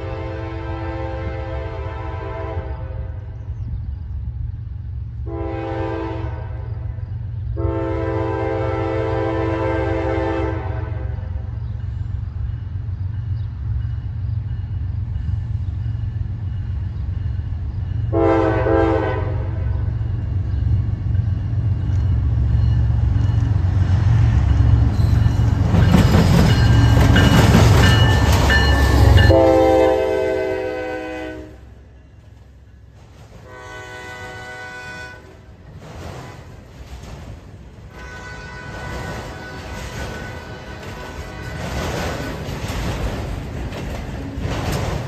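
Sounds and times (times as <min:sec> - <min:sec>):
train air horn blasts: 0:00.0 - 0:03.3, 0:05.2 - 0:07.0, 0:07.6 - 0:11.4, 0:18.1 - 0:19.8, 0:28.9 - 0:31.9, 0:33.4 - 0:35.6, 0:37.9 - 0:42.0
locomotive engine rumble: 0:00.0 - 0:45.0
freight cars rolling: 0:19.8 - 0:29.4, 0:35.4 - 0:45.0.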